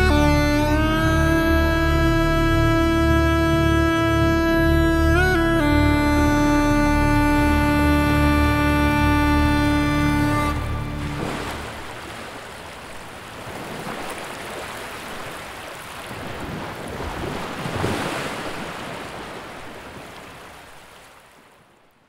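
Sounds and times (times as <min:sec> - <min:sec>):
surf washing onto shore: 0:10.6 - 0:21.8.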